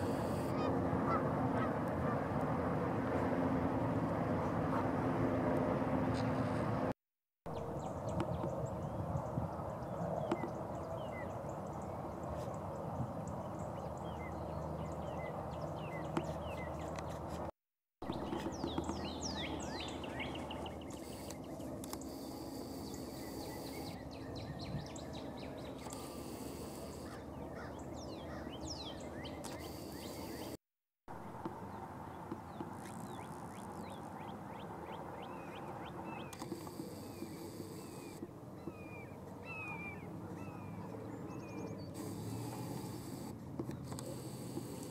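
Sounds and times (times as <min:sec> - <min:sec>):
birds chirping: 0:07.5 - 0:17.2, 0:18.0 - 0:30.6, 0:31.7 - 0:44.9.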